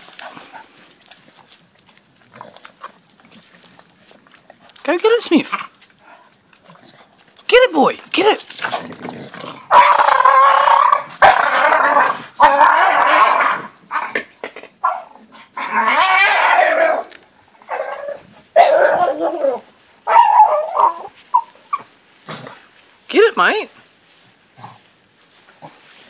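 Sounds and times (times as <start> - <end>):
dogs growling in play: 2.1 - 4.8, 5.6 - 7.4, 8.5 - 19.6, 22.2 - 22.7.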